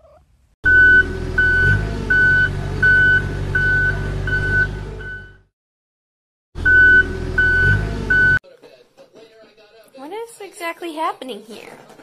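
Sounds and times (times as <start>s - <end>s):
engine running: 0.6s - 5.5s, 6.6s - 8.4s
reversing alarm beeping: 0.7s - 5.5s, 6.6s - 8.4s.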